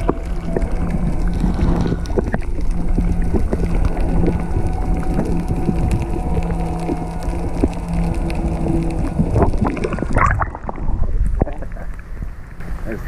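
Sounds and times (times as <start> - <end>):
clicks and crackles: 0.0 - 12.7
underwater motor hum: 0.0 - 13.0
underwater rumbling: 0.0 - 13.0.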